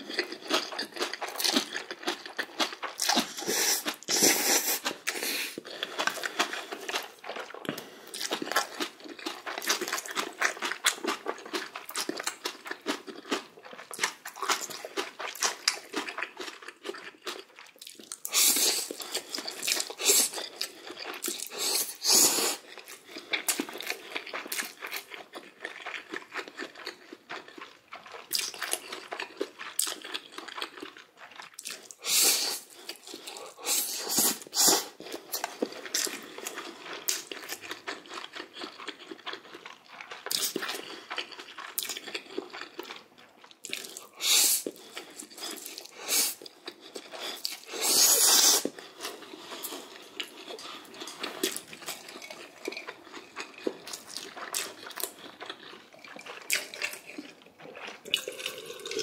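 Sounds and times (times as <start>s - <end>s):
wet chewing: 0.0s - 59.0s
noodle slurps: 3.0s - 7.1s, 18.2s - 22.7s, 32.0s - 35.0s, 44.1s - 46.4s, 47.1s - 59.0s.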